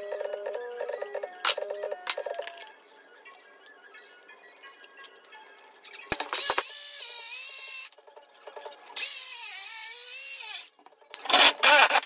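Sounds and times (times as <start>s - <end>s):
circular saw cutting wood: 8.9s - 12.0s.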